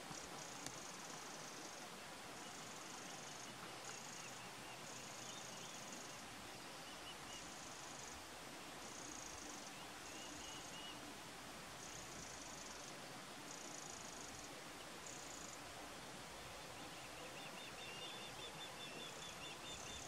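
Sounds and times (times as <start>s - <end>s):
steady hiss: 0.0s - 20.0s
faint chirps: 8.8s - 11.1s, 16.5s - 20.0s.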